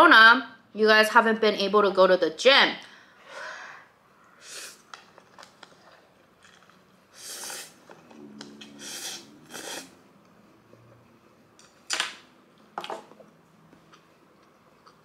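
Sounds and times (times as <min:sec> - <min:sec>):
slurping noodles: 0:05.7 - 0:10.0.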